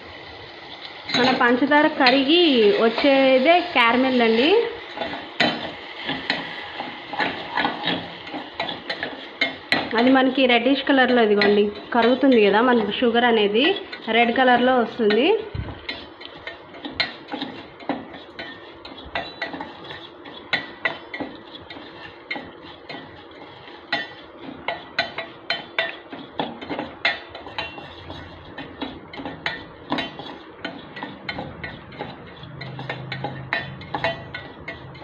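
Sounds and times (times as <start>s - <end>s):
spoon clinking in saucepan: 15.9s - 23.1s.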